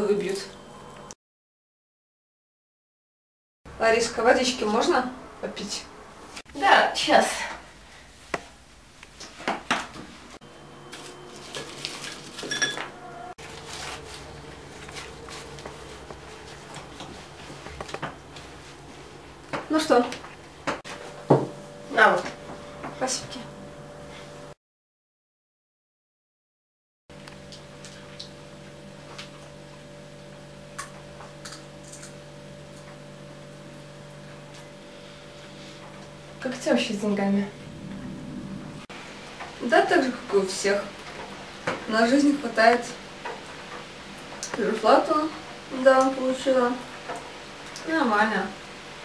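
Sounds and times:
electrical hum: 0.0s - 1.2s, 3.7s - 24.6s, 27.1s - 49.0s
glass clinking: 12.5s - 12.9s.

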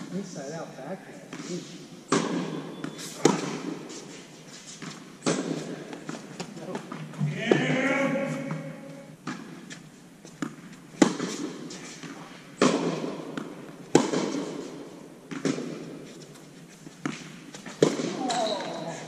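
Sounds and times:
racquet strings hitting tennis ball: 2.1s - 3.9s, 4.9s - 7.8s, 10.4s - 16.0s
tennis ball bouncing on hard court: 2.1s - 3.9s, 4.8s - 7.7s, 8.4s - 16.4s, 17.0s - 18.8s.

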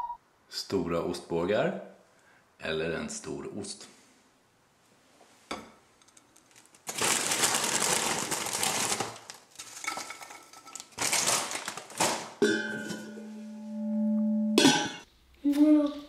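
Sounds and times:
cheese puffs clattering onto plate: 6.0s - 12.4s
plastic snack bag crinkling: 6.4s - 12.4s
steady held multi-pitch tone: 12.7s - 15.0s.

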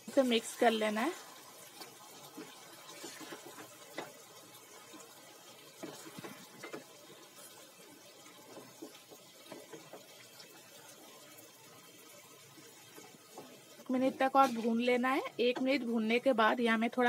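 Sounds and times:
frying hiss: 0.0s - 17.0s
wooden spatula scraping pot: 1.7s - 4.2s, 4.8s - 11.2s, 12.6s - 16.2s.

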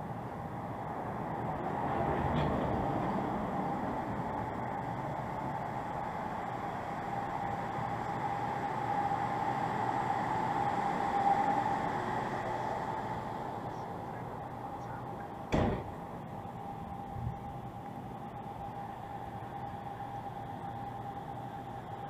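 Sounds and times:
traffic noise: 0.0s - 22.0s
steady hum: 2.7s - 22.0s
sharp knock: 15.5s - 16.0s.

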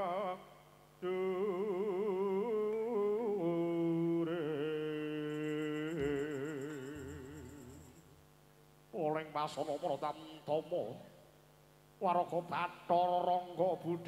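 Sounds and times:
man chanting sung narration: 3.2s - 7.9s, 8.9s - 11.2s, 12.0s - 14.0s.

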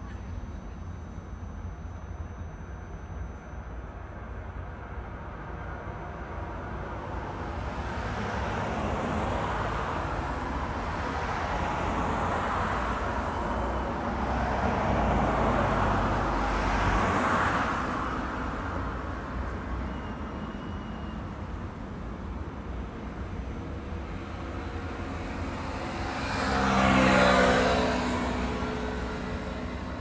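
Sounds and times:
cars passing: 7.2s - 30.0s.

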